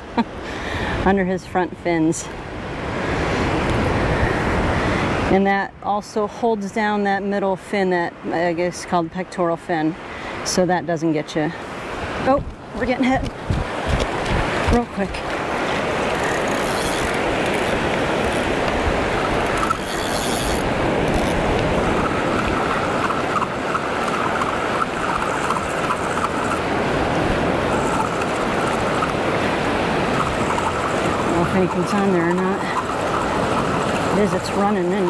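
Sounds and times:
surf washing on beach: 0.0 - 35.0
wind on microphone: 11.8 - 35.0.

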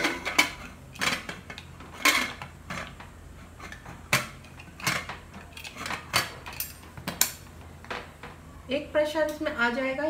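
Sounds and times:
metal lid clinking and scraping: 0.0 - 2.9, 3.6 - 6.8.

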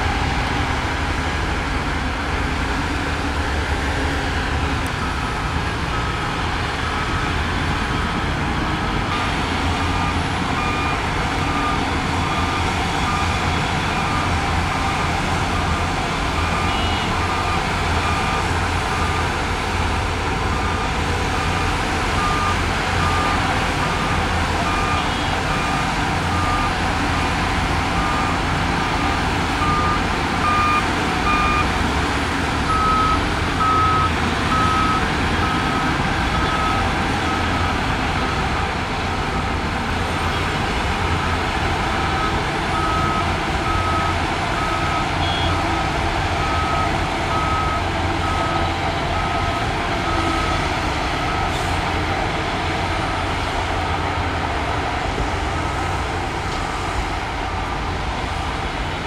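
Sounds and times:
diesel engine rumble: 0.0 - 59.0
reversing alarm beeping: 4.8 - 7.4, 8.9 - 31.7, 32.6 - 39.6, 42.0 - 45.8, 46.4 - 51.7.

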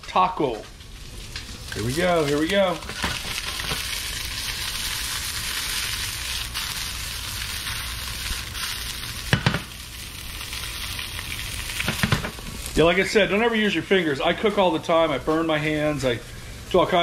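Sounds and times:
fish sizzling in a frying pan: 0.9 - 12.8.

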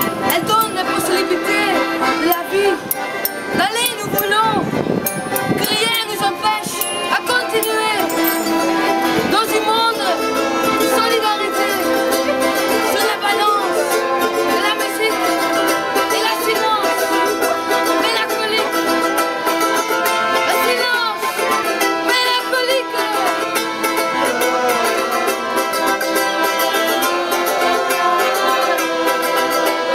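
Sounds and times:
accordions playing: 0.0 - 29.9
strummed string instrument: 0.0 - 29.9
woman singing: 5.6 - 8.5, 9.2 - 12.0, 12.7 - 17.2, 17.9 - 18.8, 20.4 - 21.4, 22.1 - 23.4.

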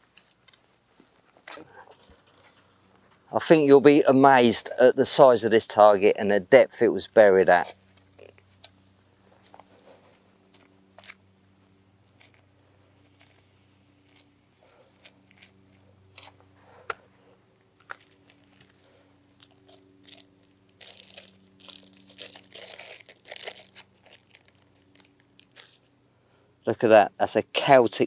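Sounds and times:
plastic bag crinkling: 17.8 - 25.9.

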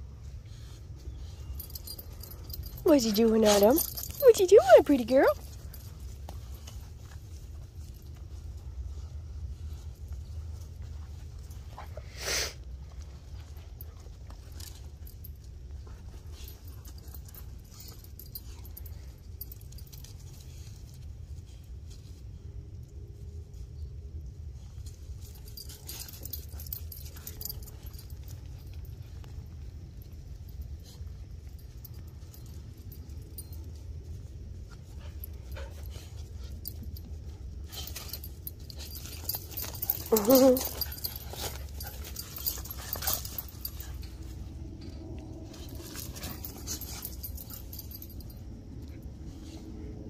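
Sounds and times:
steady low rumble: 0.0 - 50.0
faint jingles: 0.2 - 12.1, 12.7 - 50.0
dogs sniffing: 0.3 - 15.0, 34.7 - 48.4
rustling: 24.5 - 50.0
dogs scuffling in leaves: 39.0 - 42.8
dog whining: 39.8 - 42.0
low rumble: 40.9 - 50.0.

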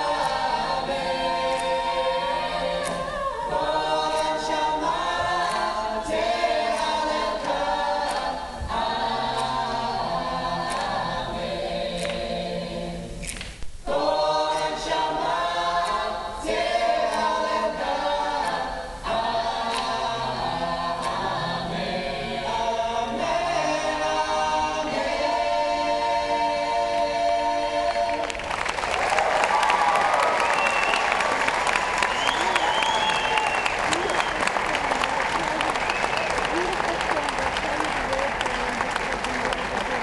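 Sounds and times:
choir singing in harmony: 0.0 - 36.3
applause: 28.2 - 40.0.

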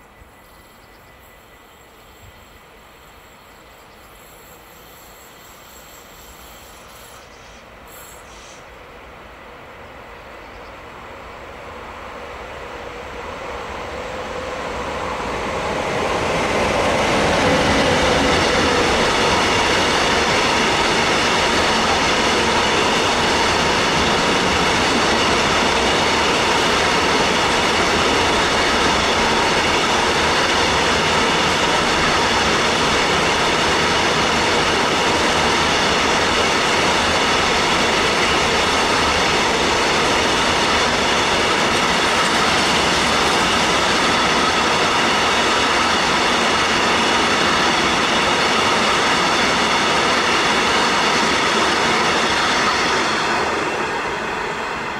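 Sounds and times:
steady train whine: 0.0 - 54.9
wheels rumbling on rail: 0.0 - 54.9.

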